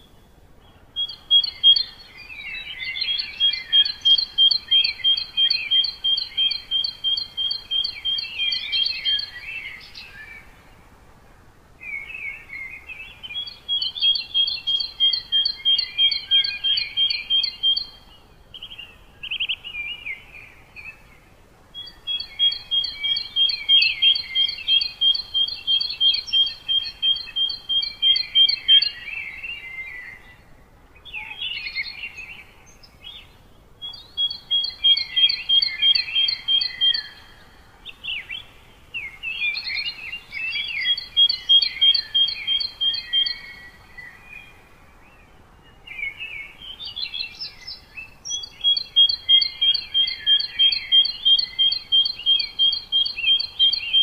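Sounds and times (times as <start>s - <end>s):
birds chirping and twittering: 0.0s - 11.2s, 11.8s - 54.0s
bird singing two-pitch song: 1.0s - 10.3s, 12.0s - 21.0s, 21.8s - 44.2s, 45.7s - 54.0s.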